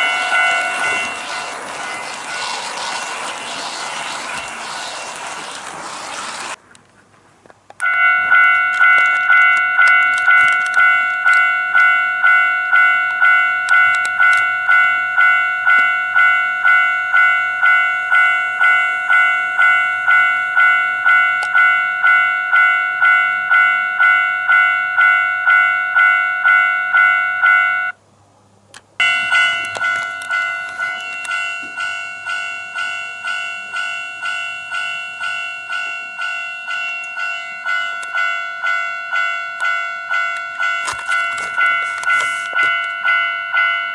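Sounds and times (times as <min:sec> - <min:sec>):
level-crossing alarm clanging: 0:00.0 - 0:06.6, 0:07.8 - 0:28.0, 0:29.0 - 0:43.9
toy train rolling on track: 0:00.0 - 0:06.6, 0:29.0 - 0:38.3, 0:40.4 - 0:43.1.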